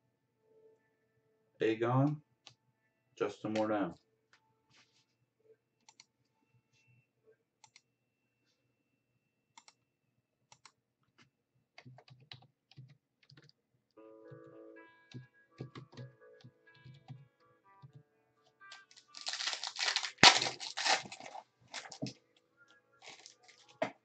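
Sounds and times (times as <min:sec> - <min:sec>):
faint music: 0:00.0 - 0:09.0, 0:14.0 - 0:24.0.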